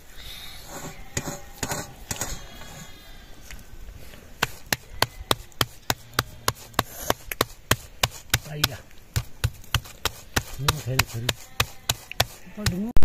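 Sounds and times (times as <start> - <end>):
knife chopping on wooden board: 4.4 - 12.9.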